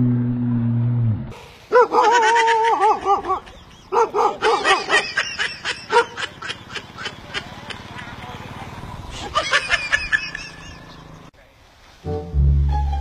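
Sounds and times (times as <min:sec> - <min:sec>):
low droning tone: 0:00.0 - 0:01.4, 0:12.1 - 0:13.0
dog yelping and barking: 0:01.7 - 0:05.3, 0:05.9 - 0:06.2.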